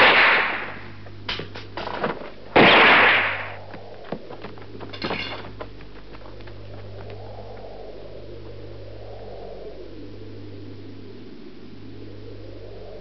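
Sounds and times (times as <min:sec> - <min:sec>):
loud gunshots: 0:00.0 - 0:00.8, 0:02.6 - 0:03.6.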